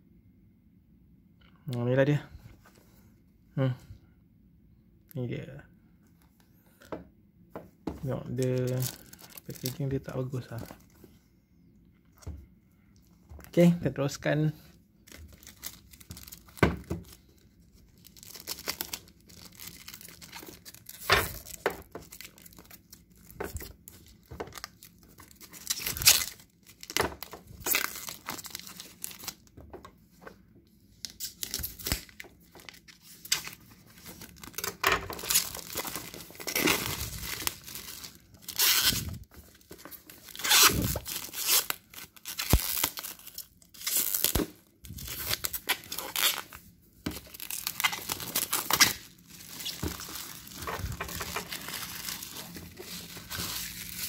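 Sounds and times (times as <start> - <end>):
plastic wrap crinkling: 8.0 - 11.0, 15.0 - 29.7, 31.0 - 54.0.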